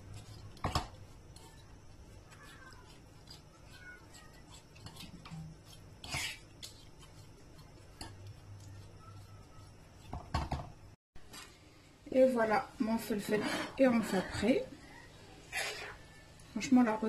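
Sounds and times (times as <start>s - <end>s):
fork scraping a frying pan: 0.1s - 10.1s, 15.5s - 16.0s.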